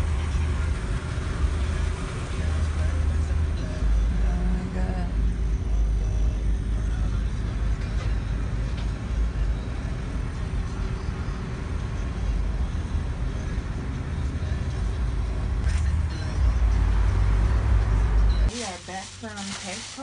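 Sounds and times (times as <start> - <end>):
car idling from inside cabin: 2.4 - 8.1.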